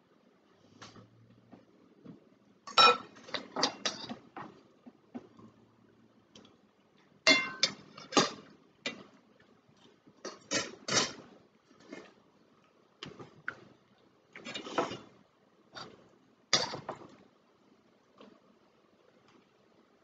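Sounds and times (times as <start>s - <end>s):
cutlery clinking on plates: 2.7s - 4.2s, 7.3s - 9.1s.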